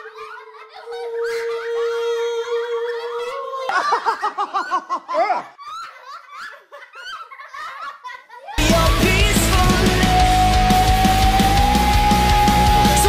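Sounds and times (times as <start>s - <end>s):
people laughing: 0.0s - 10.4s.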